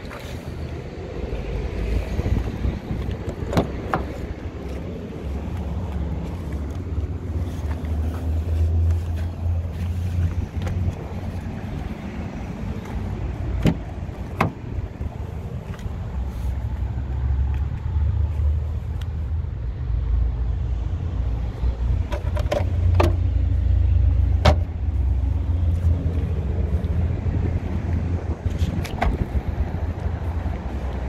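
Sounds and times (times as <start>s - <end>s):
wind buffeting microphone: 0.0s - 8.1s, 24.8s - 31.0s
sharp clicks and knocks: 22.0s - 23.2s.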